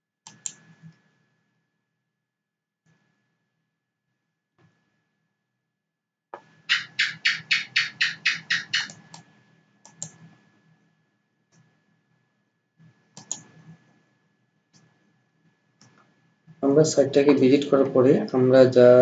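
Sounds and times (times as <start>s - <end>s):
computer mouse clicks: 0.2s - 0.7s, 6.7s - 9.2s, 9.8s - 10.3s, 13.2s - 13.6s.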